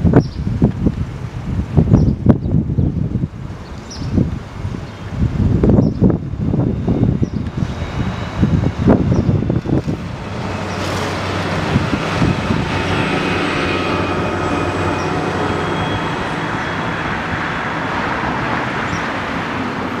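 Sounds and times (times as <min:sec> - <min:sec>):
road traffic rumble: 0:00.0 - 0:20.0
wind on microphone: 0:00.0 - 0:20.0.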